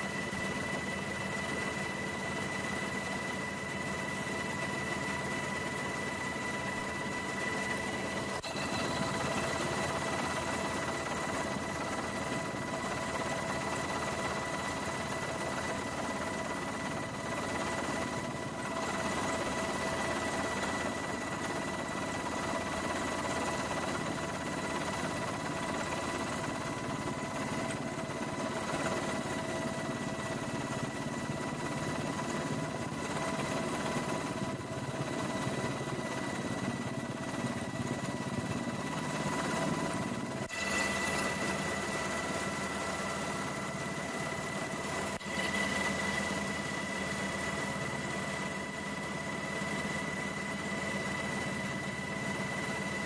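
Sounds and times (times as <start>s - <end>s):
helicopter engine and rotor: 0.0s - 53.0s.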